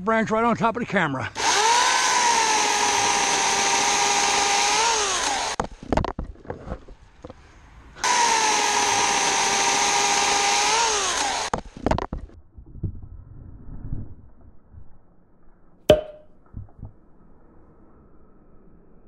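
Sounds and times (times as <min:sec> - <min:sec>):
electric chainsaw cutting branch: 0:01.4 - 0:05.7, 0:08.0 - 0:11.7
knocks: 0:15.9 - 0:16.2.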